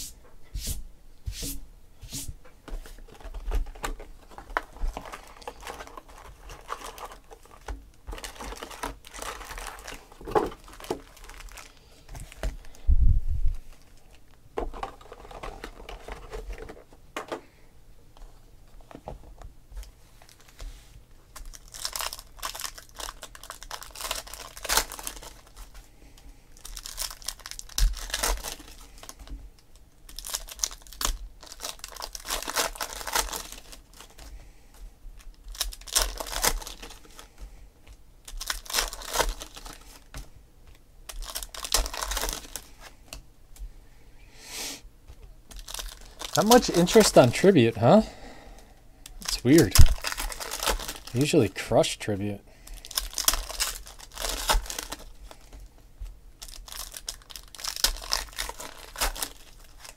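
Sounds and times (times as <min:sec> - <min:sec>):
foil wrappers crinkling and tearing: 0:03.0 - 0:12.8, 0:13.6 - 0:16.8, 0:19.8 - 0:20.7, 0:21.3 - 0:34.5, 0:35.2 - 0:42.9, 0:45.5 - 0:48.0, 0:49.0 - 0:55.7, 0:56.3 - 0:59.9
cards being shuffled: 0:49.2 - 0:51.4.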